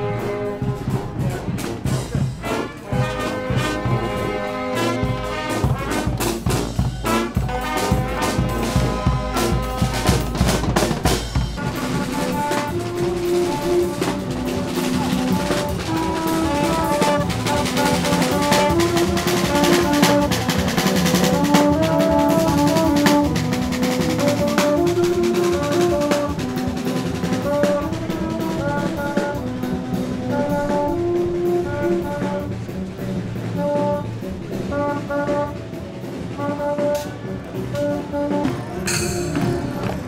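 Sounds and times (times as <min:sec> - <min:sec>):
brass band playing over drums: 0:00.0 - 0:40.0.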